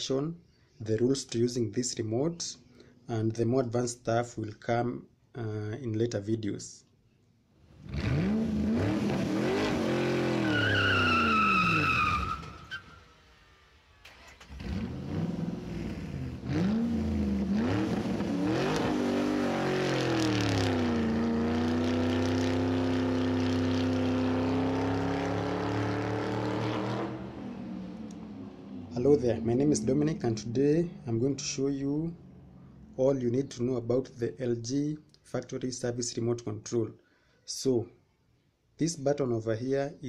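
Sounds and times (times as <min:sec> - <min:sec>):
car engine revving: 0:07.7 - 0:32.9
tyre squeal: 0:10.3 - 0:13.1.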